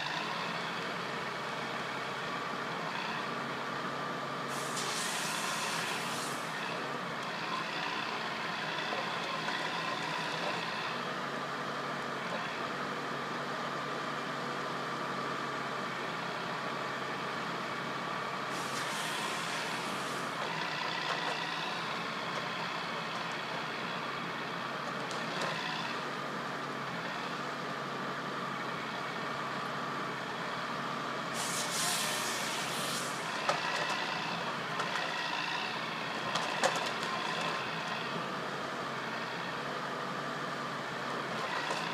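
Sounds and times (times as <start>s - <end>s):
diesel engine running: 0.0s - 41.9s
hydraulic hisses: 4.5s - 6.5s, 18.5s - 20.3s, 31.3s - 33.3s.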